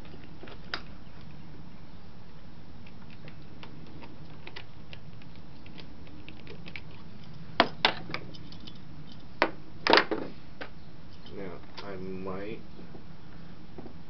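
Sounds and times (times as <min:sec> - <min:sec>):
metal tools clacking: 0:06.6 - 0:09.3.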